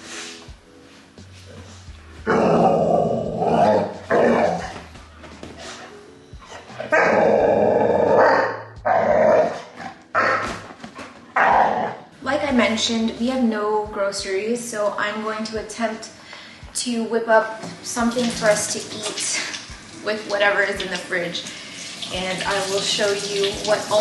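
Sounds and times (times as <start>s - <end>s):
puppy growling and barking: 2.2s - 4.9s, 6.6s - 10.6s, 11.4s - 12.1s.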